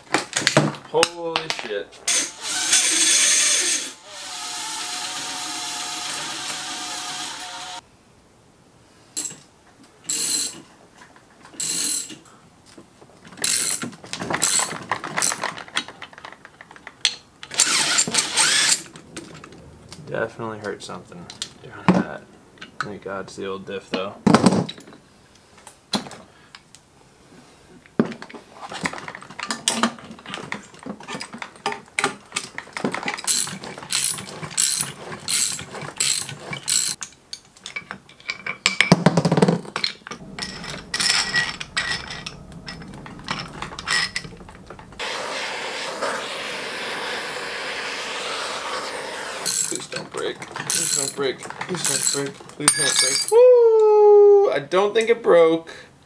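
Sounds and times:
mechanical whirr: 17.5 - 19.0, 40.2 - 47.5
ratchet clicking: 33.2 - 37.0, 50.7 - 51.2
loud metal clunk: 38.8 - 45.2.

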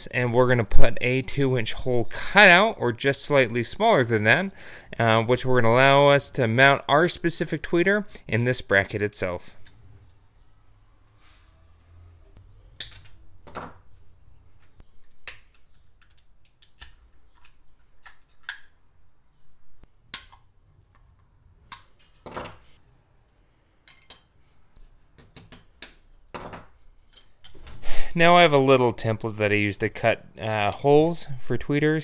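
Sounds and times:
hard plastic clicks and snaps: 14.6 - 18.8.

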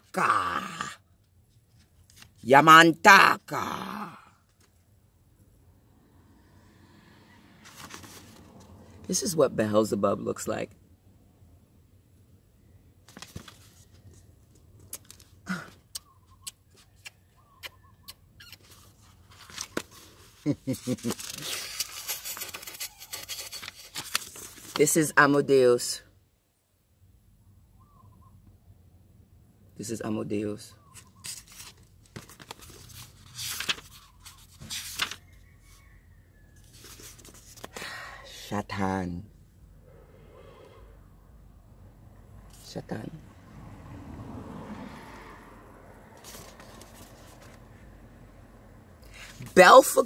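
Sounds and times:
book pages rustling: 1.5 - 2.4, 7.6 - 9.1, 13.0 - 15.4, 18.4 - 25.0, 31.0 - 35.8, 36.6 - 37.8, 46.1 - 47.8.

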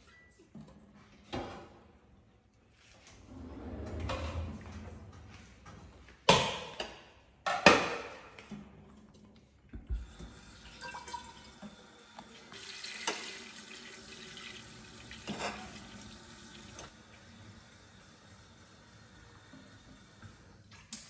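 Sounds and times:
tap running water into pot: 9.9 - 16.9.

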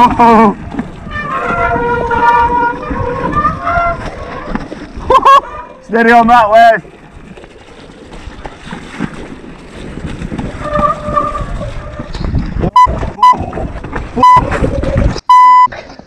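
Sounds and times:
wind on microphone: 0.0 - 5.7, 7.0 - 15.3
bike tyres rumbling over rock: 0.0 - 15.2
short loud beeps: 14.2 - 14.5, 15.3 - 15.7.

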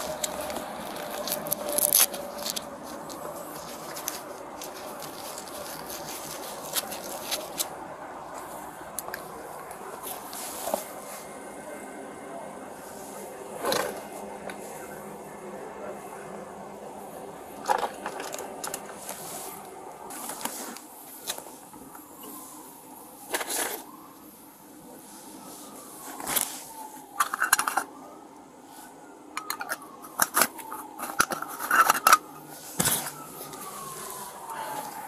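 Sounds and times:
objects being moved: 0.0 - 11.4, 12.9 - 14.8, 17.6 - 22.5, 23.2 - 24.0, 25.7 - 28.0, 29.4 - 35.0
faint wailing tone: 0.0 - 35.0.

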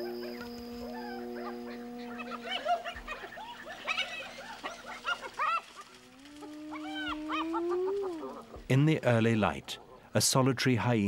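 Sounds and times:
hyena whooping: 0.0 - 8.6
hyenas crying: 0.0 - 8.7.

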